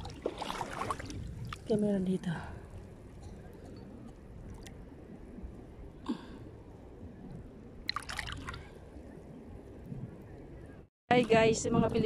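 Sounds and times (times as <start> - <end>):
water splashing and dripping: 0.0 - 1.8, 7.8 - 9.2
low steady rumble: 0.0 - 12.0.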